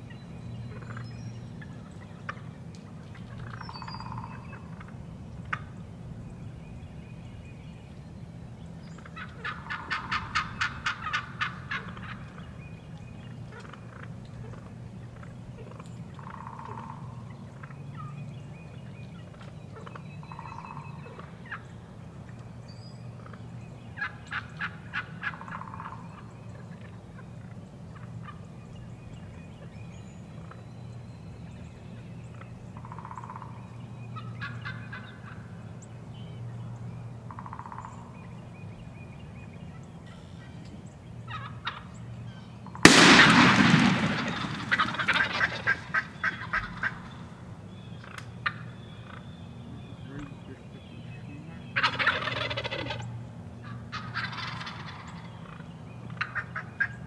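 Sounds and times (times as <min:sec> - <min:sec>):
turkeys gobbling: 0:00.7 - 0:05.8, 0:08.9 - 0:12.6, 0:13.4 - 0:18.1, 0:19.2 - 0:21.8, 0:23.2 - 0:28.4, 0:32.3 - 0:33.6, 0:34.2 - 0:35.5, 0:37.3 - 0:38.1, 0:41.3 - 0:47.3, 0:48.0 - 0:49.3, 0:51.5 - 0:57.0.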